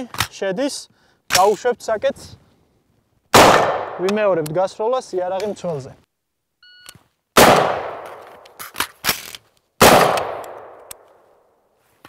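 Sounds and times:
rifle shots with echo: 3.3 - 4.2, 7.4 - 8.4, 9.8 - 11.0.

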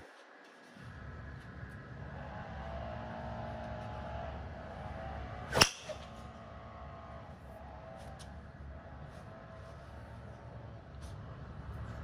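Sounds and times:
golf club striking ball: 5.5 - 6.2.

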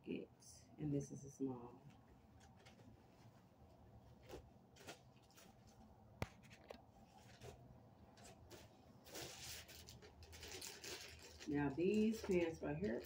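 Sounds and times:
clothes and packaging rustling: 1.8 - 13.0.

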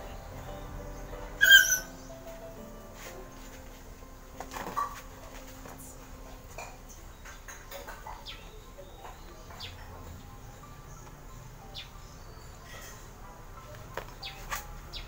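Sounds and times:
small birds chirping: 0.0 - 15.0
bird squeak: 1.4 - 2.0.

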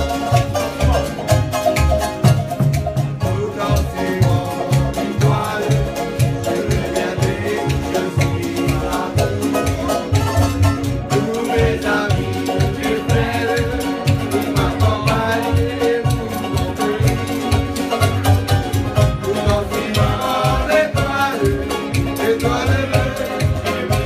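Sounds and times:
acoustic guitars and ukuleles strummed: 0.0 - 24.0
steady low beat: 0.0 - 24.0
voices singing: 3.1 - 24.0.

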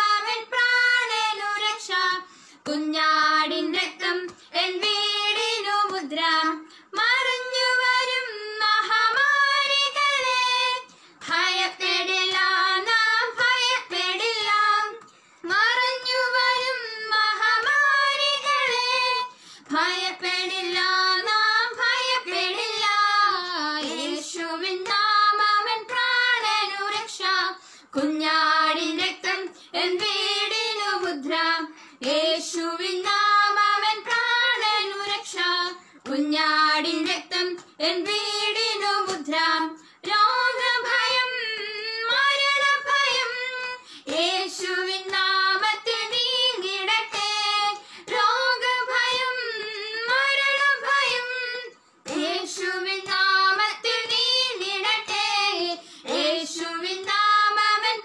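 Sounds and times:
women singing unaccompanied: 0.0 - 58.0
singers breathing: 2.2 - 2.6, 10.9 - 11.2, 15.1 - 15.4, 19.3 - 19.7, 27.6 - 27.9, 31.7 - 32.0, 43.8 - 44.1, 47.8 - 48.1, 55.8 - 56.1.

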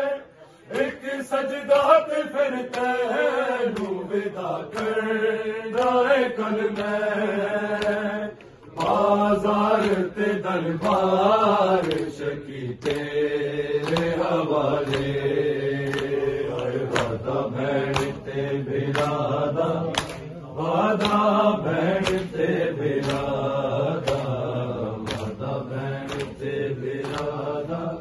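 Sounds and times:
men chanting a lament: 0.0 - 28.0.

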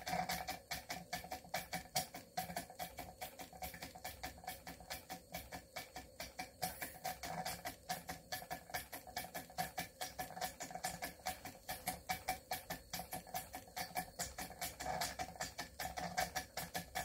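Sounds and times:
steam engine exhaust chuffing: 0.0 - 17.0.

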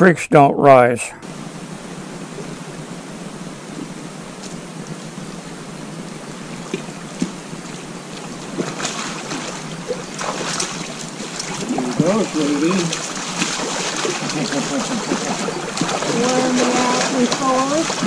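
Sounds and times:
river water rushing: 1.2 - 18.0
fish splashing at surface: 8.2 - 18.0.

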